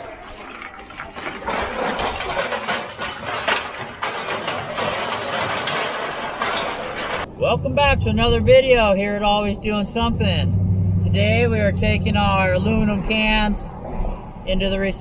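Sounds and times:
aluminum cans clattering: 0.0s - 7.3s
machinery running: 0.0s - 8.9s.

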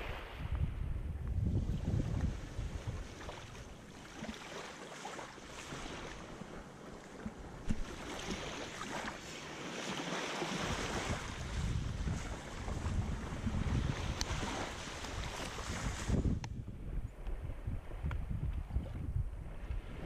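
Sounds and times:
small waves washing: 0.0s - 0.9s, 1.5s - 16.4s
wind rumbling on microphone: 0.0s - 4.4s, 10.4s - 20.0s.

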